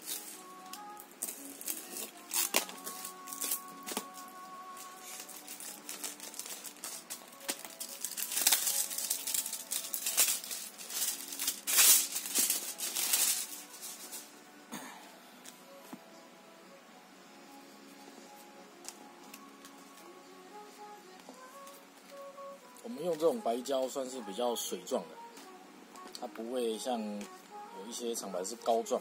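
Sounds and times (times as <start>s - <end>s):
plastic packaging crinkling: 0.0s - 14.3s
background music: 0.0s - 29.0s.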